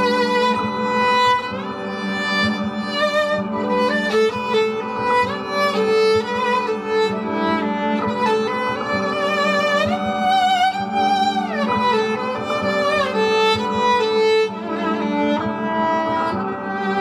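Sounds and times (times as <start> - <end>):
looped viola held notes: 0.0 - 17.0
viola melody with slides: 0.0 - 17.0.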